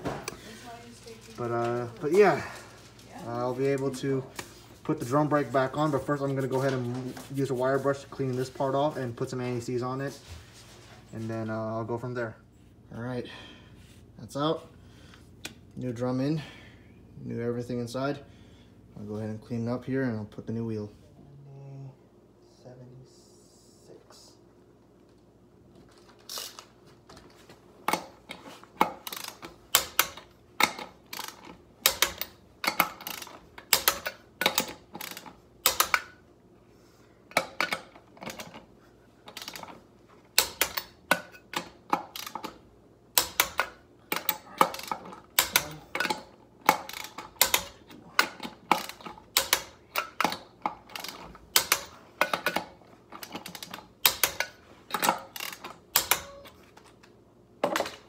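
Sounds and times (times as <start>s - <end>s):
hand ratchet clicking: 27.9s - 36.2s, 39.3s - 56.5s.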